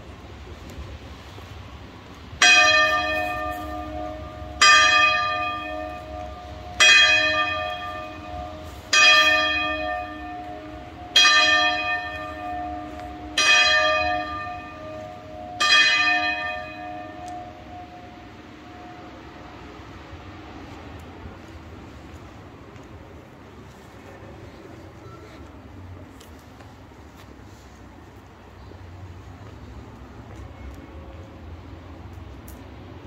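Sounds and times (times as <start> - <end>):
tower clock bell striking: 2.4 - 19.7.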